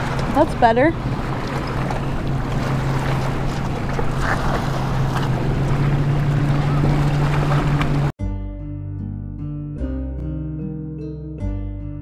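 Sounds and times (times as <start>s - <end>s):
low motor drone: 0.0s - 8.1s
wind on microphone: 0.0s - 8.1s.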